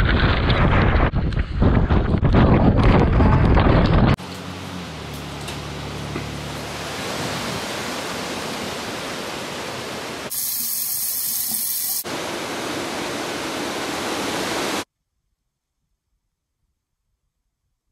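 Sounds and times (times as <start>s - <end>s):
water rushing: 6.3s - 14.9s.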